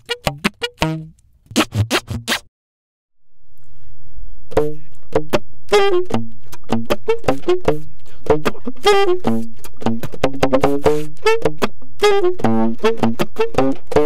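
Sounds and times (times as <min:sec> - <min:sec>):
beatbox saxophone pops: 0:00.0 - 0:02.5, 0:04.5 - 0:14.0
low saxophone drone: 0:05.7 - 0:14.0.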